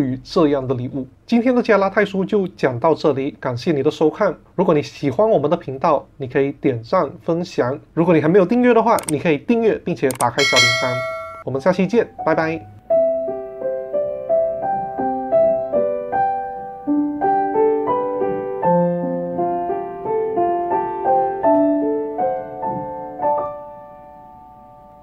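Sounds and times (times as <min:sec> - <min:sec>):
gentle piano music: 0:10.4 - 0:25.0.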